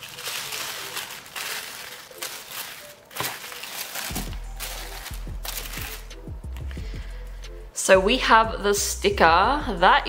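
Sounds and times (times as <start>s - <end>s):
tissue paper rustling and crinkling: 0.0s - 6.1s
music with deep bass beat: 4.1s - 10.0s.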